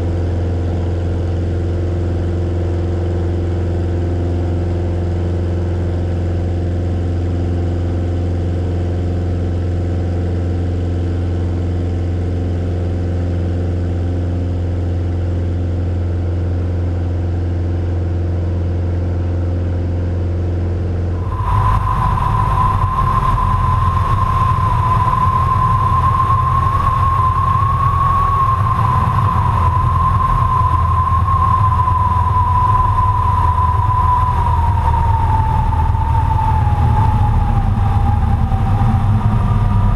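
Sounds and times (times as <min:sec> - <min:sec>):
propeller plane engine droning: 0:00.0 - 0:39.9.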